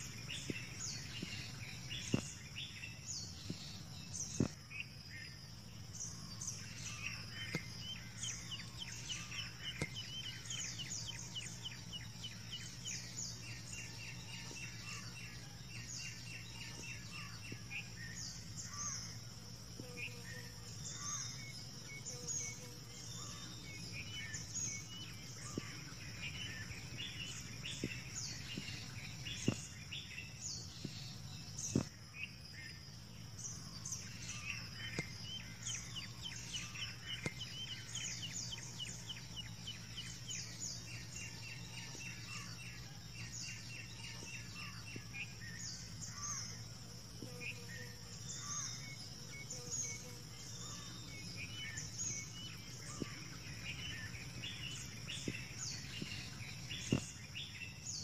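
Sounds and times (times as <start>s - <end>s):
birds chirping and calling: 0.0s - 4.9s, 33.2s - 58.0s
high-pitched insect drone: 0.0s - 58.0s.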